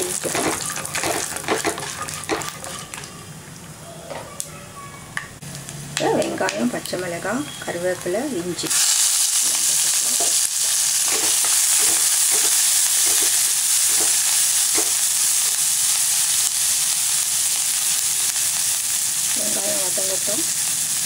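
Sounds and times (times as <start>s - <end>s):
wooden spatula scraping pan: 0.0s - 3.2s
vegetables sizzling in hot oil: 0.0s - 3.4s, 5.5s - 21.0s.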